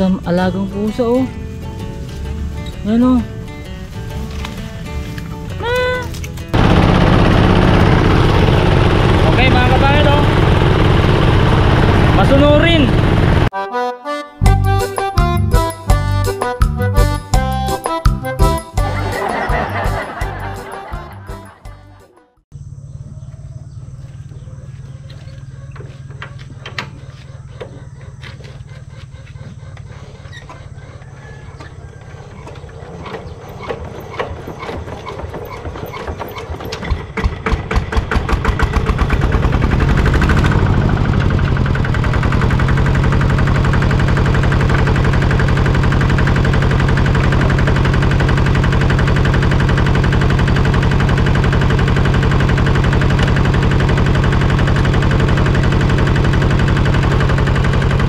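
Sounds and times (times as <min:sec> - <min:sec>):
tractor engine putting: 0:00.0 - 0:13.5, 0:22.6 - 0:58.0
engine being cranked by hand: 0:24.6 - 0:58.0.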